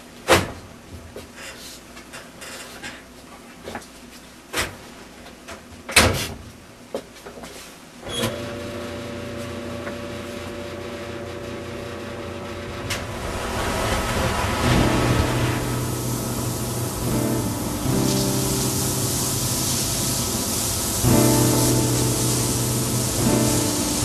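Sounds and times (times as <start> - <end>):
washing machine hum: 8.0 - 24.0
loud bang: 12.8 - 21.4.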